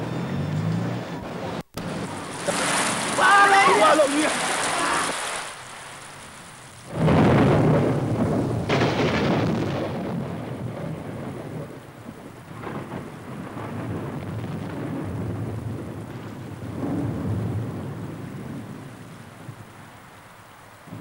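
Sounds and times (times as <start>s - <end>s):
steady falling rain: 1.6s - 21.0s
thunder clap rumbling: 6.2s - 19.9s.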